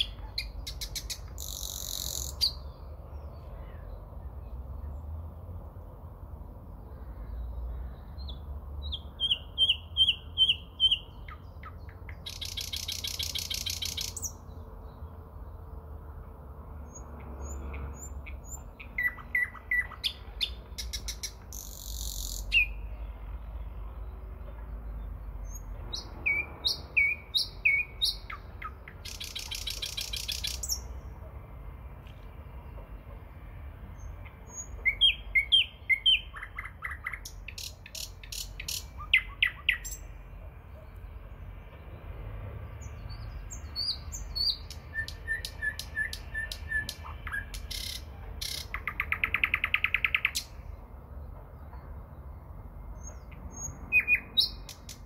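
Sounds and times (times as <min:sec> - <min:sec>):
nightingale singing: 0:00.0 - 0:04.6, 0:06.9 - 0:15.1, 0:16.9 - 0:23.2, 0:25.4 - 0:31.1, 0:34.0 - 0:41.2, 0:42.8 - 0:50.8, 0:53.0 - 0:55.0.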